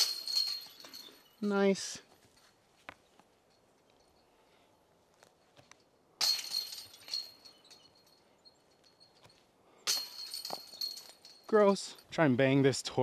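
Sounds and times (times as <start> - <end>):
disc striking basket chains: 0.0 - 1.6, 5.4 - 12.2.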